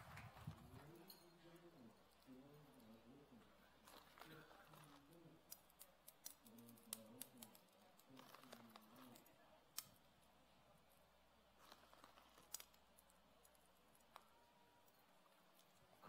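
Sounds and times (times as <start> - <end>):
candy balls clicking: 3.8 - 10.3, 11.5 - 16.0.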